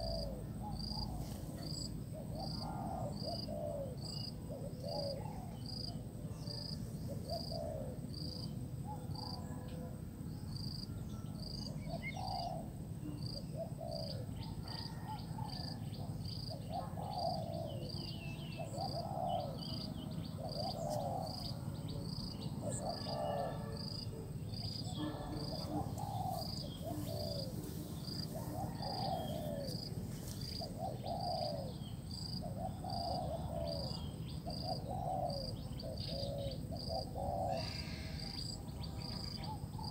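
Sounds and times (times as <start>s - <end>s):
dove cooing: 0.0s - 10.0s, 11.8s - 39.9s
insects chirping: 14.8s - 39.9s.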